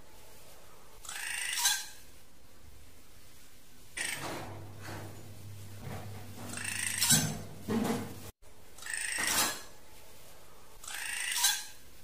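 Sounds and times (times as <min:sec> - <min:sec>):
scratchy bird calls: 0:10.8 - 0:11.8.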